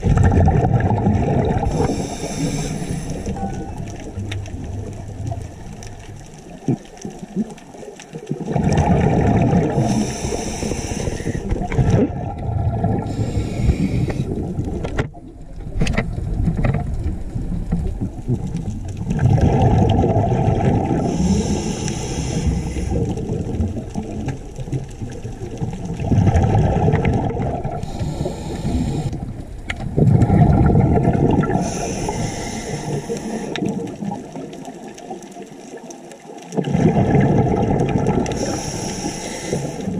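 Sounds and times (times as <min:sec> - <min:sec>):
bubbling exhaled air: 0:00.0 - 0:39.9
hissing regulator inhalations: 0:01.7 - 0:03.4, 0:09.7 - 0:11.7, 0:13.0 - 0:14.4, 0:21.0 - 0:23.2, 0:27.8 - 0:29.2, 0:31.6 - 0:33.7, 0:38.3 - 0:39.9.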